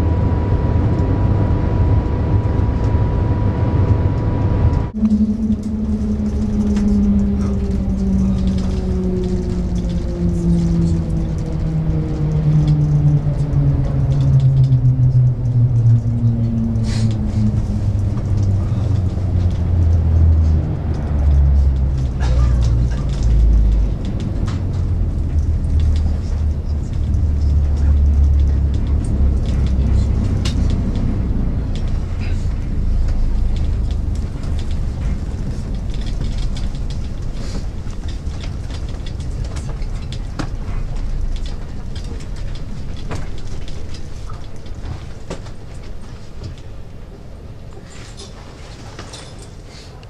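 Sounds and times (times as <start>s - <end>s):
train hum falling in pitch: 0.0s - 36.8s
low rumble: 0.0s - 49.4s
light clicks and rattles: 5.1s - 50.0s.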